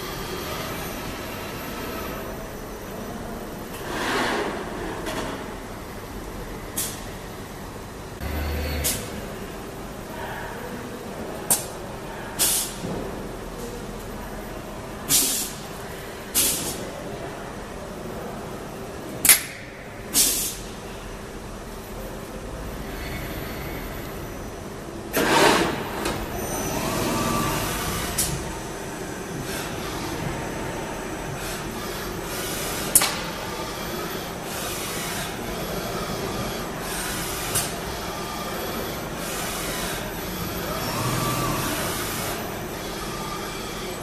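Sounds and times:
machine humming: 5.7s - 10.1s, 26.0s - 44.0s
compressed air hissing: 15.1s - 15.6s, 20.2s - 20.7s.

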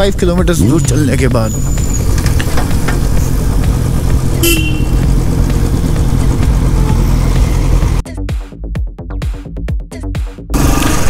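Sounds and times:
motorcycle engine rumbling: 0.0s - 8.0s
horn toot: 4.3s - 5.1s.

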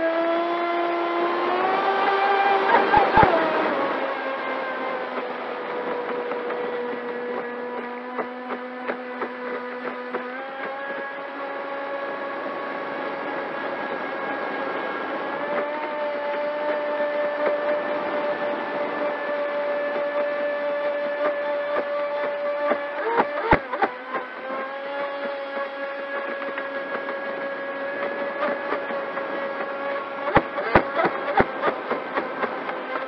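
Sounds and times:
electric motor whining: 0.0s - 33.0s.

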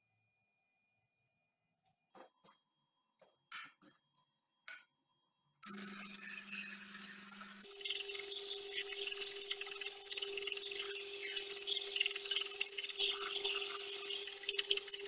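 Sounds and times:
steel scraping on abrasive belt: 5.6s - 15.0s.

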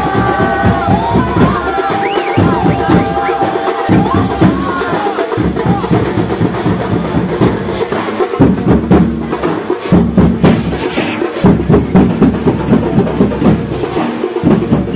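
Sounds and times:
drum and percussion music: 0.0s - 14.9s.

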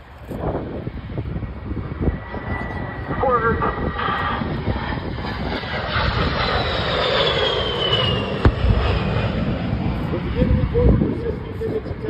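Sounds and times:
jet flying past: 0.0s - 12.0s
low rumbling: 0.0s - 12.0s
pyrotechnic explosion bang: 8.2s - 9.2s.

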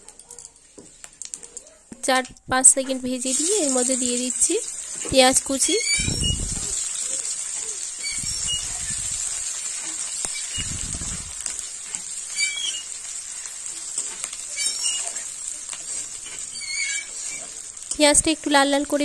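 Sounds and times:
onions sizzling in oil: 2.5s - 19.0s
spatula scraping pan: 3.2s - 18.0s.

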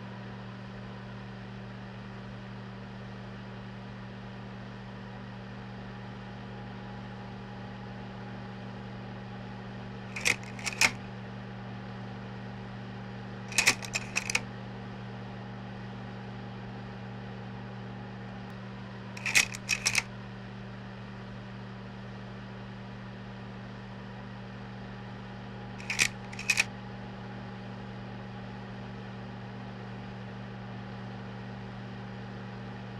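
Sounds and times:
slide projector clicking: 10.1s - 11.0s, 13.5s - 14.4s, 19.2s - 20.1s, 25.8s - 26.7s.

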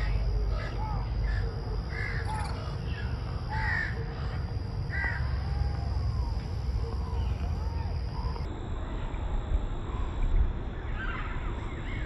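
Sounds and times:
crows cawing: 0.0s - 5.7s.

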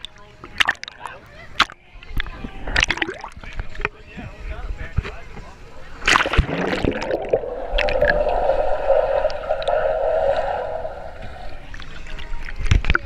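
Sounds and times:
muffled underwater noise: 5.4s - 12.5s
splash into water: 6.0s - 11.8s.

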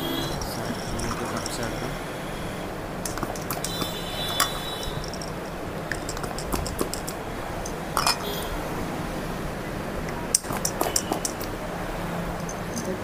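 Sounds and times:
hand pump working: 0.0s - 2.0s, 3.0s - 8.5s, 10.3s - 11.6s
plastic cups clicking: 0.4s - 1.6s, 3.0s - 8.3s, 10.4s - 11.5s.

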